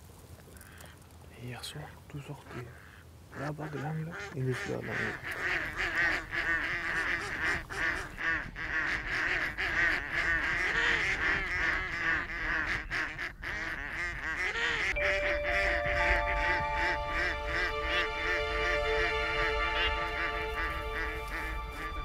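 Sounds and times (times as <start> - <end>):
ducks quacking: 1.8 - 22.0
soft music: 15.0 - 22.0.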